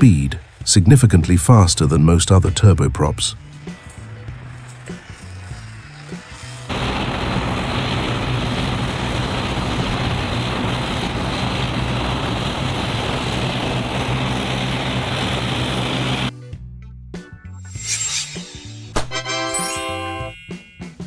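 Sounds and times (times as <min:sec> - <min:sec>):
turboprop engines droning: 0:03.4 - 0:16.3
propeller rushing noise: 0:03.5 - 0:16.3.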